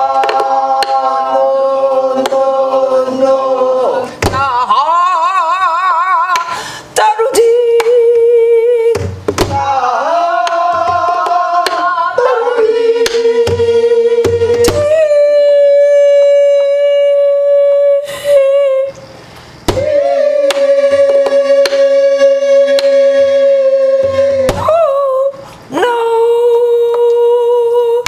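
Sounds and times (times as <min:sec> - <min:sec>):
woman singing with vibrato: 0:00.0 - 0:19.1, 0:19.7 - 0:28.0
barrel drum beats: 0:19.6 - 0:21.8.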